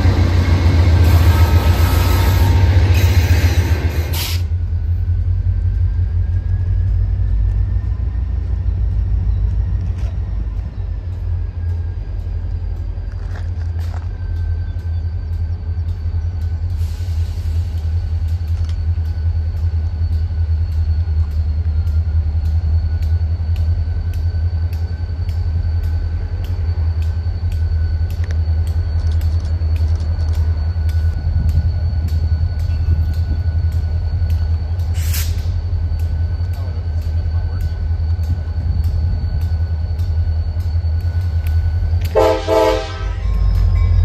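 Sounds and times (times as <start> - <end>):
diesel locomotive engines droning: 0.0 - 44.0
locomotive bell ringing: 17.9 - 44.0.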